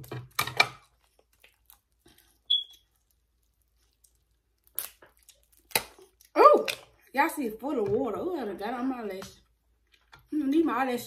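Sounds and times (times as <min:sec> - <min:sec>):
crab shell crunching: 0:00.3 - 0:07.0.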